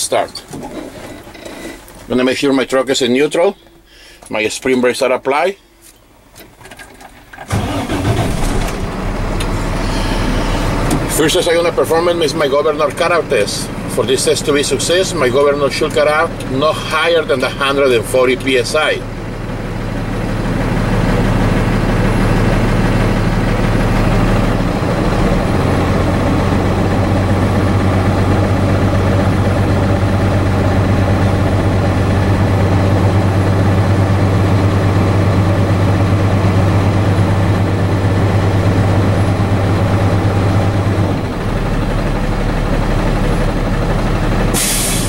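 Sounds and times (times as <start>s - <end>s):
air compressor building pressure: 7.5s - 12.2s, 44.5s - 45.0s
truck diesel engine running: 7.5s - 45.0s.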